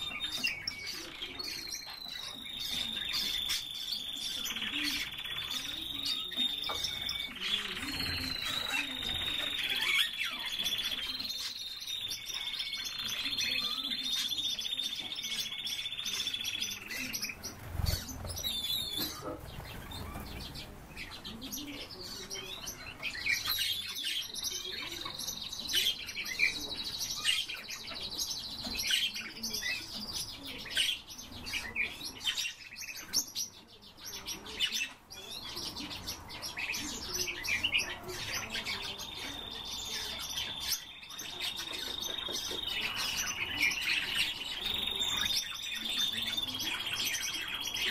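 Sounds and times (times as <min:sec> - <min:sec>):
songbirds chirping: 0:00.0 - 0:47.9.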